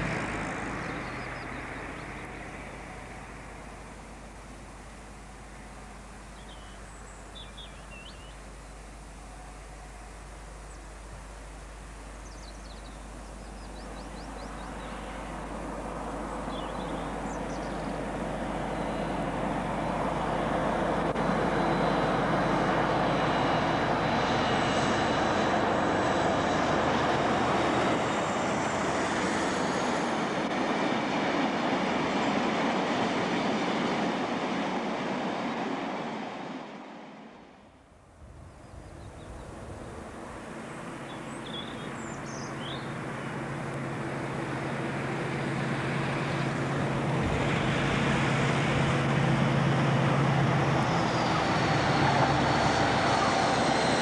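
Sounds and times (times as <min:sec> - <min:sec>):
diesel locomotive engine: 0:00.0 - 0:54.0
train wheels on rails: 0:42.9 - 0:54.0.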